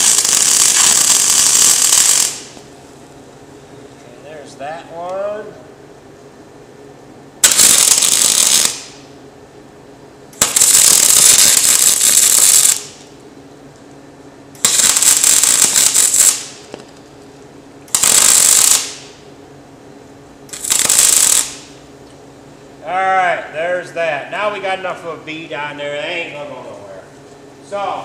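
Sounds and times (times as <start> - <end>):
welder arc crackling: 0.0 - 2.7, 7.4 - 9.0, 10.4 - 13.1, 14.6 - 16.9, 17.9 - 19.2, 20.5 - 21.8.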